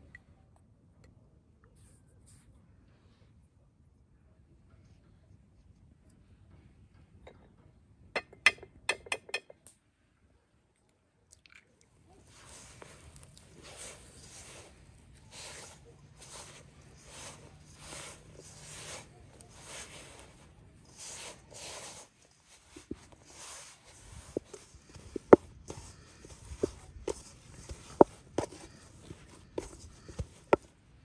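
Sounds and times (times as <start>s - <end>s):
hands kneading dough squishing: 12.0s - 31.0s.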